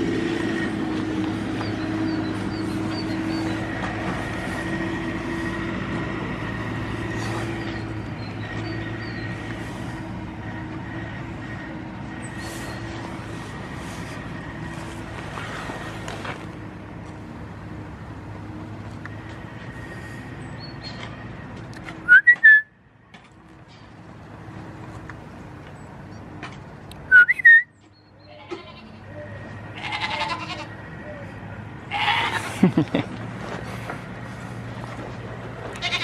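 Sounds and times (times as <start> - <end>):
goats bleating: 28.2 - 30.9, 31.8 - 32.7, 35.7 - 36.0.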